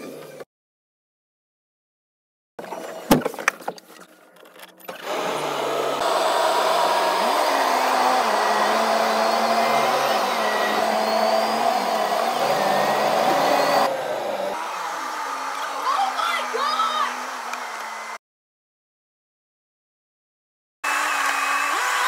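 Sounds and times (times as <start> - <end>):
tractor diesel engine running: 5.0 - 14.5.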